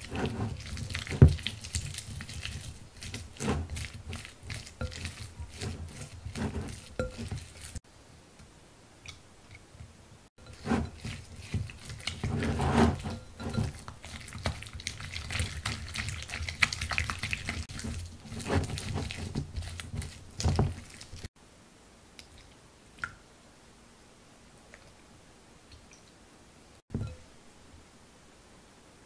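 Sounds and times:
spatula mixing dough in glass bowl: 0:00.0 - 0:07.8, 0:09.5 - 0:21.3.

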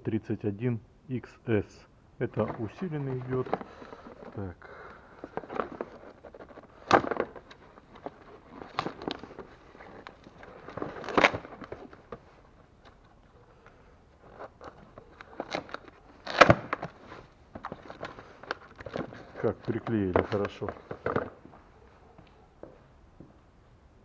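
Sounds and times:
cardboard box scraping: 0:05.2 - 0:12.1.

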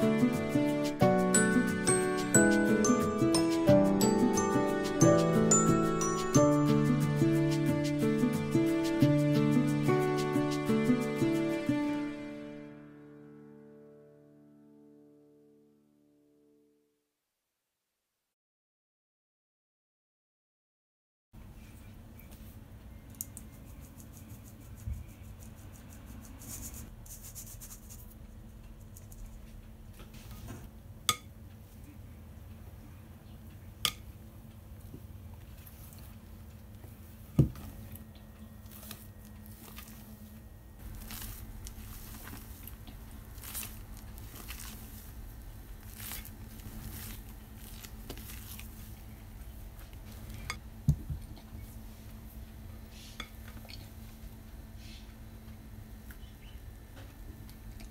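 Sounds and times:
sieve scratchy ticks: 0:23.2 - 0:29.6
spatula folding batter swishing: 0:38.7 - 0:49.2.

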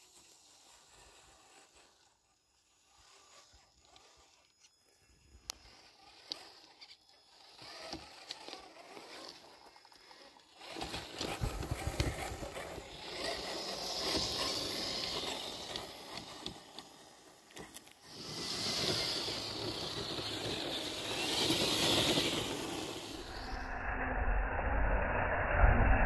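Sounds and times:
electric drivetrain whirring: 0:00.0 - 0:24.0.

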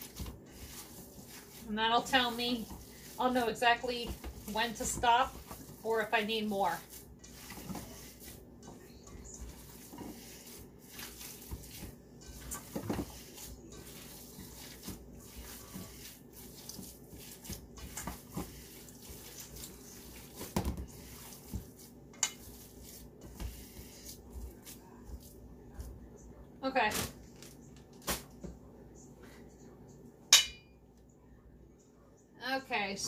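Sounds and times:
hands mixing raw meat: 0:00.0 - 0:26.2
metal bowl clinking: 0:30.3 - 0:30.8.

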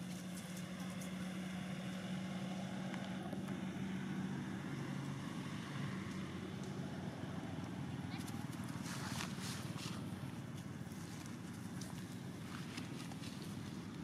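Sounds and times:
engine humming: 0:00.0 - 0:14.0.

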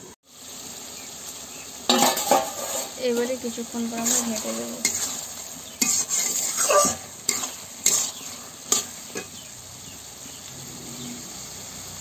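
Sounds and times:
curry sizzling: 0:00.0 - 0:12.0
spatula scraping pan: 0:01.9 - 0:09.5.

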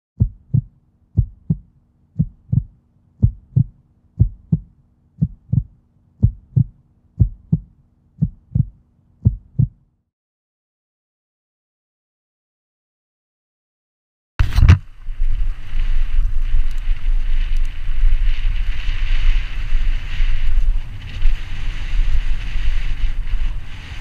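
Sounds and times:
heartbeat thumps: 0:00.2 - 0:09.8.

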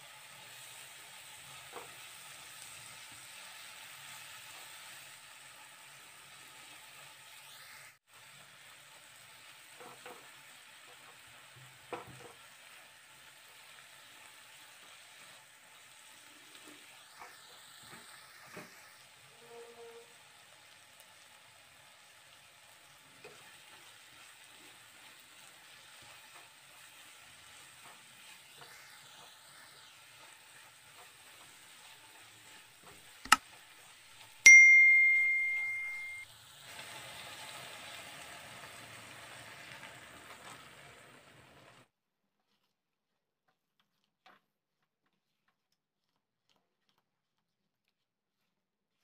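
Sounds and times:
masala sizzling in a pan: 0:00.0 - 0:34.3, 0:35.0 - 0:41.9
bell ding: 0:34.5 - 0:36.2.

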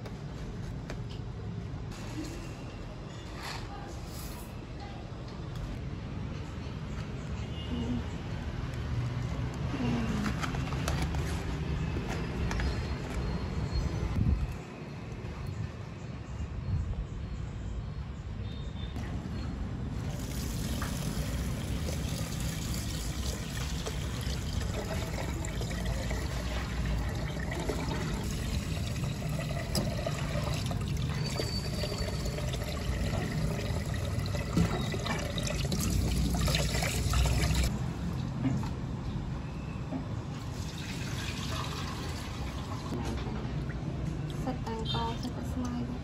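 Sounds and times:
water pouring and trickling: 0:19.9 - 0:38.7, 0:40.4 - 0:43.0.

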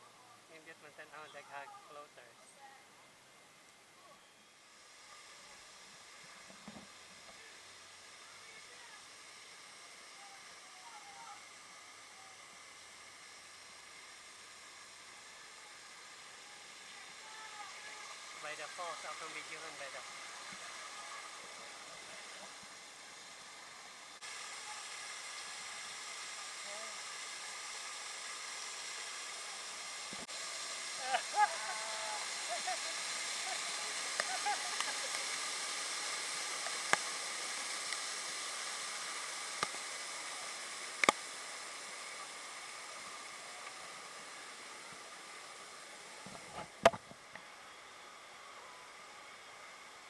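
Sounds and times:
waterfalls splashing: 0:30.3 - 0:41.3.

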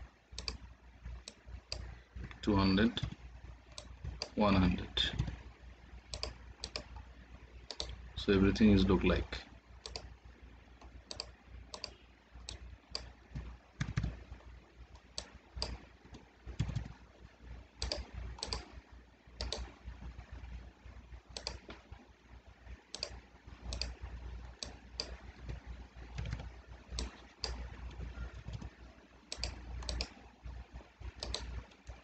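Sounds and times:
low steady hum: 0:00.0 - 0:32.0
mouse and keyboard clicks: 0:00.4 - 0:02.4, 0:06.1 - 0:07.0, 0:07.6 - 0:08.0, 0:09.8 - 0:10.1, 0:10.8 - 0:14.2, 0:15.0 - 0:17.0, 0:17.8 - 0:18.8, 0:19.4 - 0:19.7, 0:21.3 - 0:21.8, 0:22.9 - 0:28.7, 0:29.3 - 0:30.2, 0:31.1 - 0:32.0.

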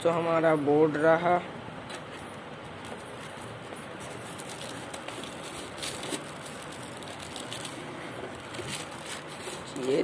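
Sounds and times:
steady background hiss: 0:00.0 - 0:10.0
plastic bag crinkling: 0:03.2 - 0:10.0.

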